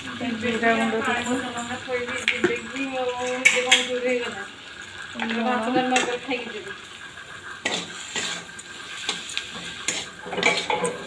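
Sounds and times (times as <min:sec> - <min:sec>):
noodles sizzling in oil: 0:00.0 - 0:11.0
metal spatula scraping a pan: 0:07.5 - 0:11.0.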